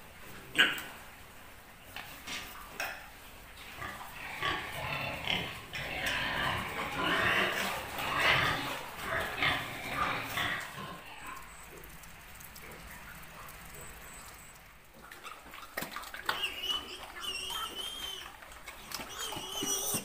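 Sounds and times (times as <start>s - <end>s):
pigs squealing: 3.8s - 12.0s, 12.6s - 20.0s.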